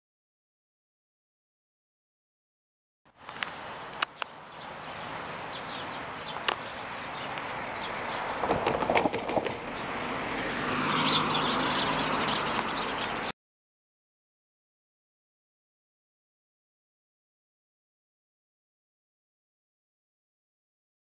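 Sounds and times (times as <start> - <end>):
birds chirping: 3.2 - 13.4.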